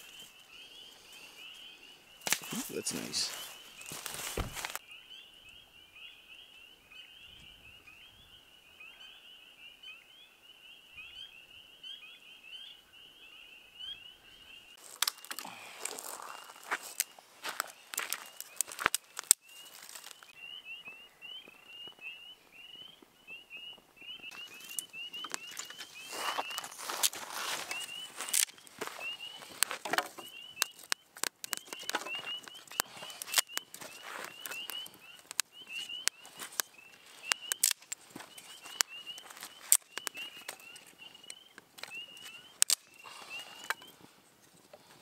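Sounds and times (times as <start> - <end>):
frogs peeping: 0.0 - 44.1
close rustling and knocking: 3.9 - 4.8.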